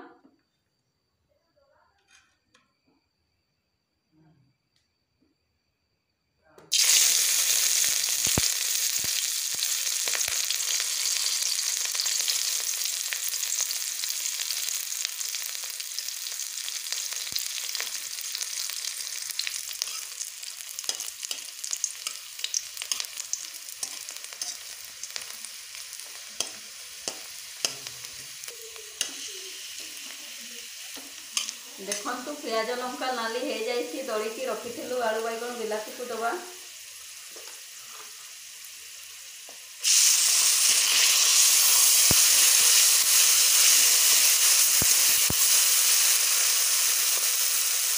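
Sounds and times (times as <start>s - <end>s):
onion sizzling in hot oil: 6.7s - 47.9s
spatula scraping and tapping pan: 26.0s - 27.9s.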